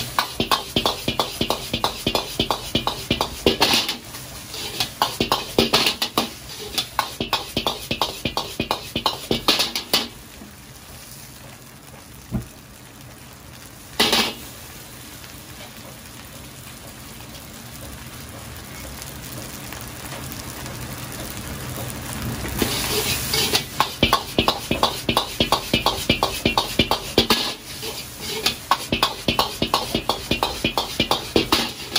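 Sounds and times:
ladle striking a wok: 0.0s - 10.2s, 14.0s - 14.4s, 22.6s - 31.9s
rice frying in a wok: 0.0s - 31.9s.

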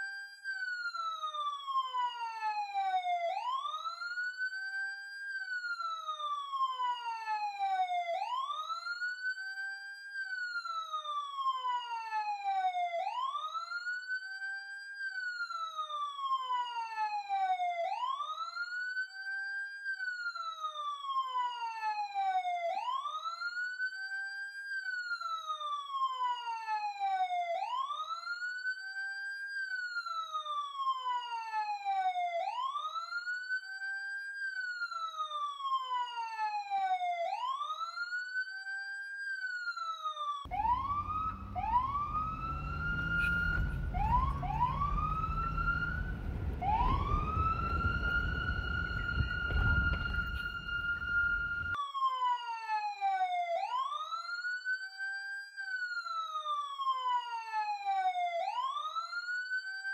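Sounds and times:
police siren wailing: 0.0s - 59.9s
low rumble: 43.5s - 51.7s.

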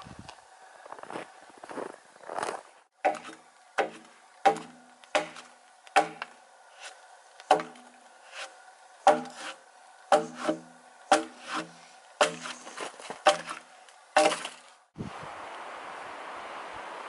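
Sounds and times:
axe chopping log: 3.0s - 6.9s, 7.5s - 12.6s, 13.2s - 14.6s.

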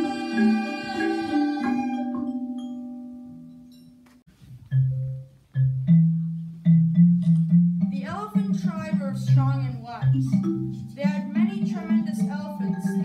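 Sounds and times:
marimba low single notes: 4.7s - 13.0s.

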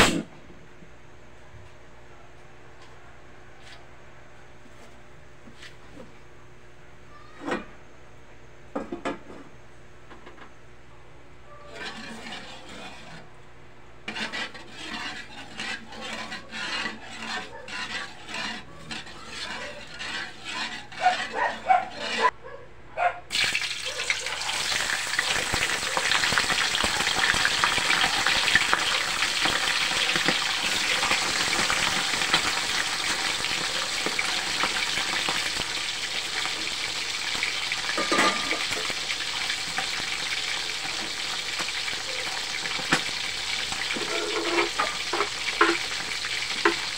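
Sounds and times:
metal spatula scraping a wok: 11.7s - 13.4s, 14.0s - 22.3s, 24.6s - 46.9s
fish sizzling in hot oil: 23.3s - 46.9s.

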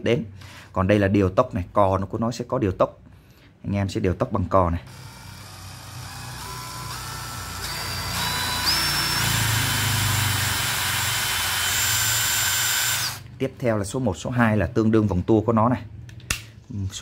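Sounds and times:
cordless drill motor whine: 4.9s - 13.2s.

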